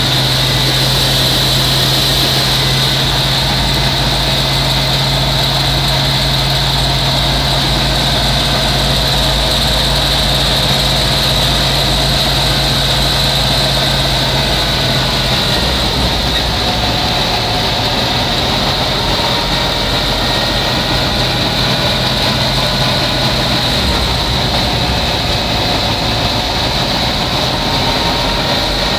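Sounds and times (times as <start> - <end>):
threshing machine droning: 0.0 - 28.9.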